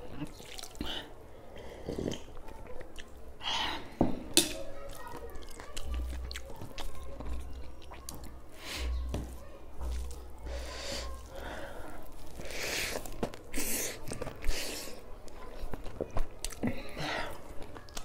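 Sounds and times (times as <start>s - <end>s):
chewing: 1.7s - 3.2s, 4.6s - 18.0s
squish of rice mixed by hand: 4.6s - 18.0s
slurping soup: 10.5s - 15.1s.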